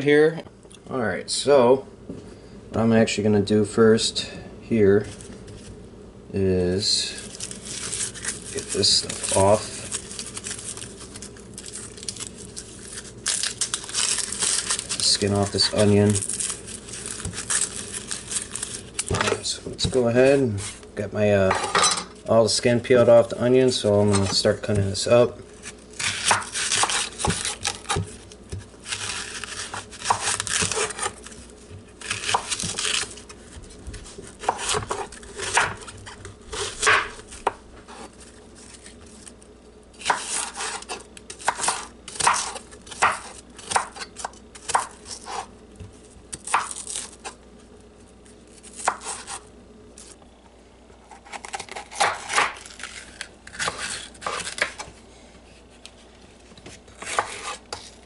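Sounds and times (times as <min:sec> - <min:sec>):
knife chopping on wooden board: 0:26.0 - 0:28.7, 0:36.6 - 0:37.6, 0:40.0 - 0:45.5, 0:57.0 - 0:57.9.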